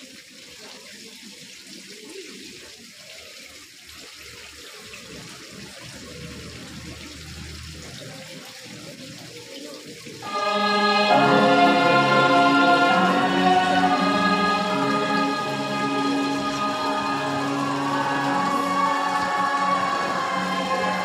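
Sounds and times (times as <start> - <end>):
choir singing slow song: 10.2 - 21.0.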